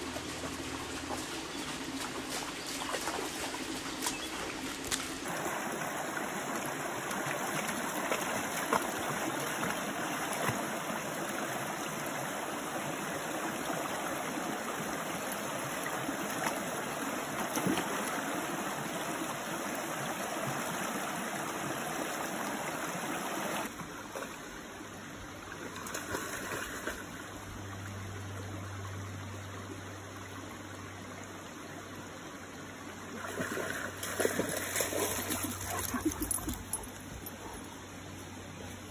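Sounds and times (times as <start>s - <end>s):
creek water over rocks: 0.0s - 38.9s.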